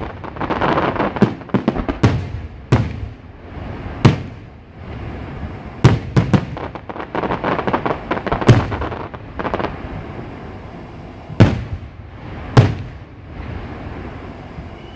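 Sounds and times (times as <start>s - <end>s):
crackling firework pops: 0.0s - 3.2s, 4.0s - 4.4s, 5.8s - 9.8s, 11.4s - 11.8s, 12.6s - 13.0s.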